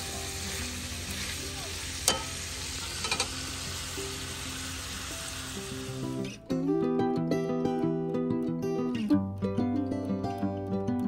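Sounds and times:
bacon sizzling in a frying pan: 0:00.0 - 0:06.3
metal tongs knocking against pan: 0:02.1 - 0:02.4.

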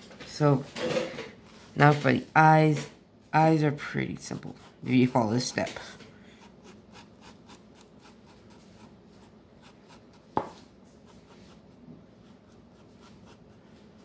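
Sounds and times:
pencil scratching on paper: 0:04.2 - 0:14.0.

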